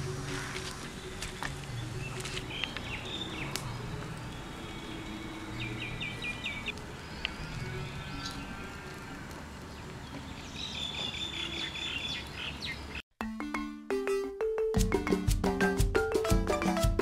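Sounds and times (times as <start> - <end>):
small birds chirping: 0.3 - 13.0.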